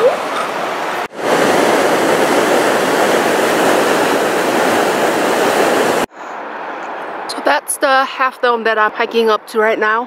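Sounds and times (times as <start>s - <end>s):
waterfall rushing: 0.0s - 6.1s.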